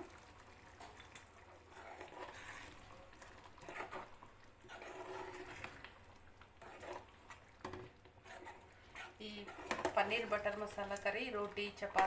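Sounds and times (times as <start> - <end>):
spoon stirring thick gravy: 0.0 - 12.0.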